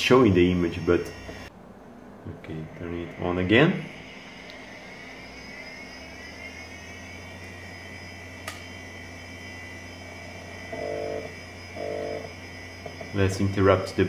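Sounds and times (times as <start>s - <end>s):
hard drive spinning up whine: 0.0s - 1.5s, 2.5s - 14.0s
low hum: 0.0s - 14.0s
sharp click: 8.4s - 8.7s.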